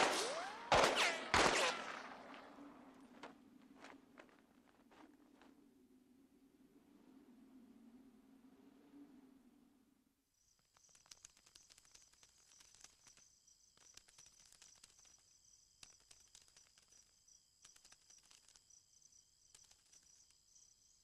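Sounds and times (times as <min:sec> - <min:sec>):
light ticks and crackles: 0:10.4 - 0:21.0.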